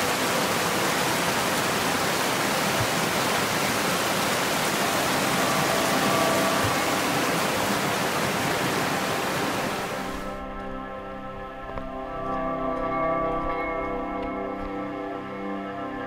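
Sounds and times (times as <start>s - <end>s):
river rushing over rocks: 0.0s - 10.4s.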